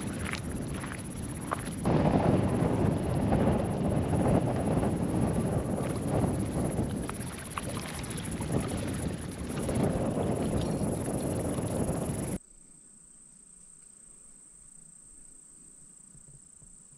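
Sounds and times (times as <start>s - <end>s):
wind buffeting microphone: 0.0s - 12.4s.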